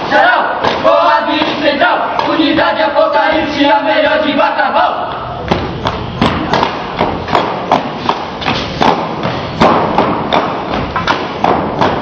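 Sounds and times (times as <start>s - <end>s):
marching feet stamping on concrete: 5.4s - 12.0s.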